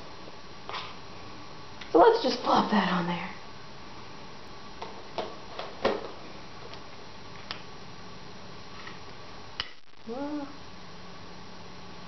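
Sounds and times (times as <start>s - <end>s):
person humming: 10.0s - 10.6s.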